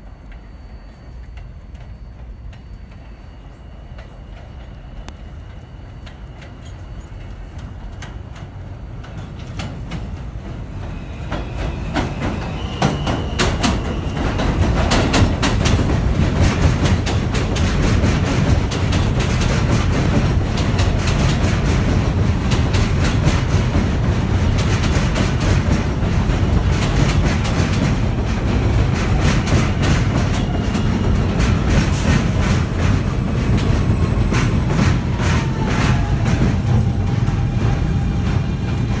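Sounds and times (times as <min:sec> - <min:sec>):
subway train rumble: 0:00.0 - 0:39.0
wheels clicking over rail joints: 0:11.3 - 0:39.0.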